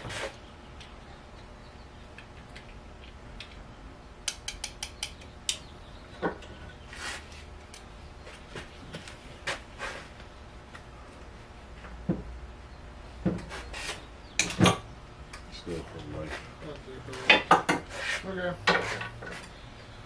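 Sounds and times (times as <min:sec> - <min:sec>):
sharp metallic clicks: 0:04.2 - 0:05.7.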